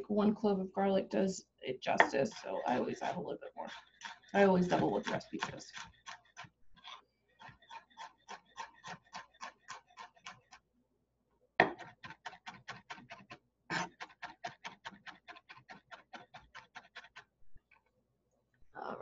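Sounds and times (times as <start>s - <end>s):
knife chopping on wooden board: 11.6s - 13.1s.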